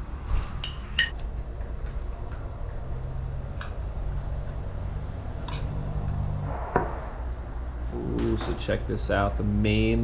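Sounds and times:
steady low hum: 0:00.0 - 0:10.0
metal spoon clinking on plates: 0:00.6 - 0:01.2.

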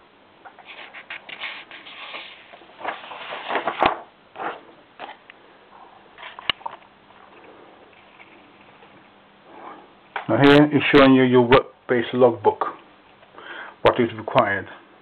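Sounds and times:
paper pages rustling: 0:00.6 - 0:05.2.

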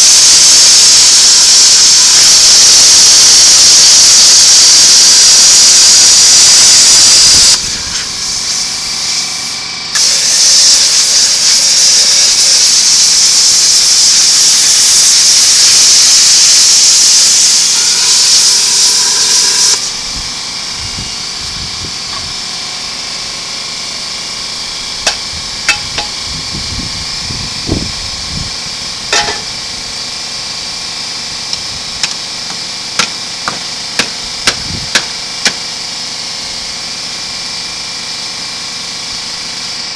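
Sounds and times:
cut-off wheel grinding steel: 0:00.0 - 0:21.4, 0:22.0 - 0:26.6, 0:29.0 - 0:29.8
steady machine hum: 0:00.0 - 0:39.9
sharp metal clanks: 0:25.0 - 0:26.2, 0:29.1 - 0:29.6.

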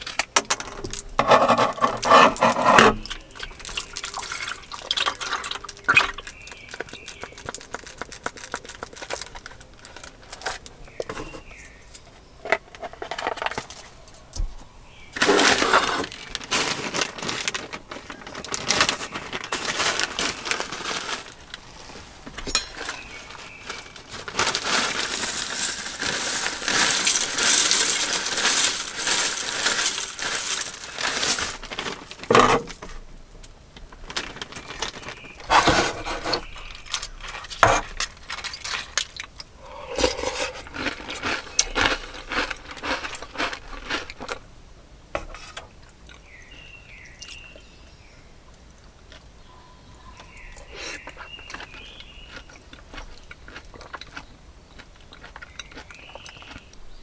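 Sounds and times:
plastic bag handled: 0:00.0 - 0:11.6, 0:15.2 - 0:33.0, 0:33.9 - 0:39.2
granola pouring rattle: 0:00.8 - 0:10.6, 0:22.6 - 0:32.3, 0:34.1 - 0:44.3.

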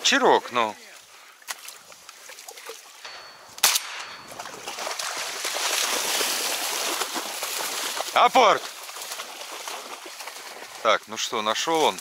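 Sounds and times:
shotgun shot: 0:03.6 - 0:04.3.

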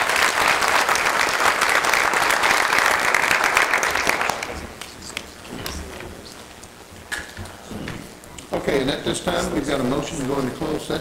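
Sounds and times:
crowd applauding: 0:00.0 - 0:04.9.

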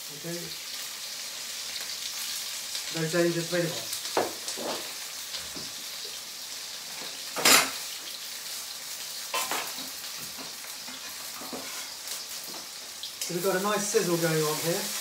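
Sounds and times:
onions sizzling in hot oil: 0:00.0 - 0:15.0
knock: 0:04.2 - 0:04.4.

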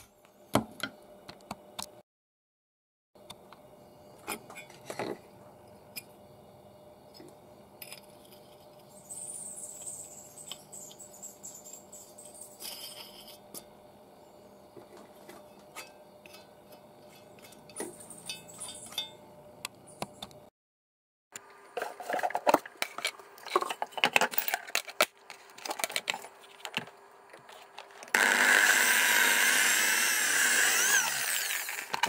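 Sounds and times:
metal clinks and scraping: 0:11.6 - 0:13.7, 0:15.4 - 0:19.3.

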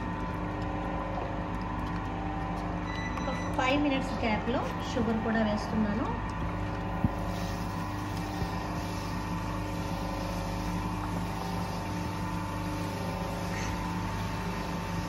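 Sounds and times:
stand mixer motor running: 0:00.0 - 0:15.0.

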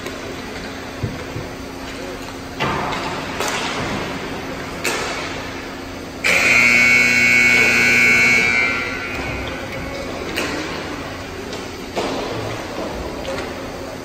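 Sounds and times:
arena background noise: 0:00.0 - 0:14.0
hockey rink buzzer: 0:06.2 - 0:09.9.

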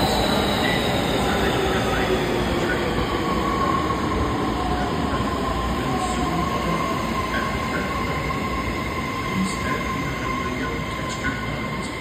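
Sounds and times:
high train whine: 0:00.0 - 0:12.0
train wheels rumbling on rail: 0:00.0 - 0:12.0.

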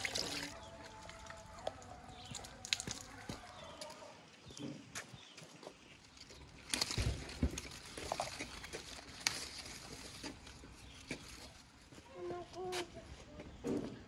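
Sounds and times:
leaves and twigs rustling: 0:00.0 - 0:04.5, 0:05.1 - 0:13.0
twig snapping: 0:02.6 - 0:03.0, 0:06.6 - 0:09.8.

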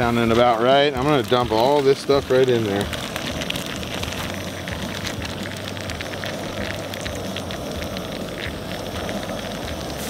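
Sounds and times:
fish sizzling in butter: 0:00.0 - 0:10.0
low hum: 0:02.2 - 0:10.0.

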